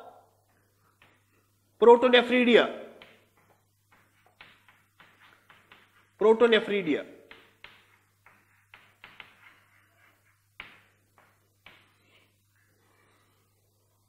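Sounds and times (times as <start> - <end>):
chalk tapping and scraping on blackboard: 0.4 - 1.6, 2.9 - 12.7.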